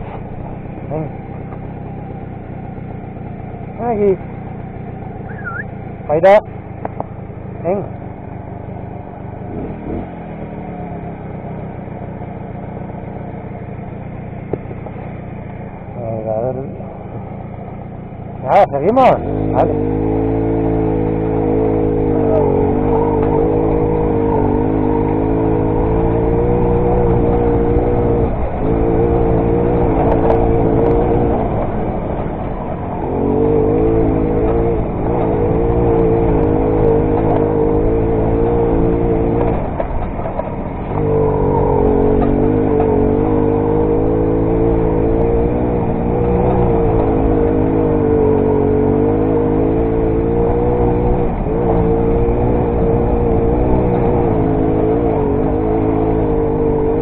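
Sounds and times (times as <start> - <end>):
two-stroke moped engine revving: 9.3 - 12.0, 17.8 - 57.0.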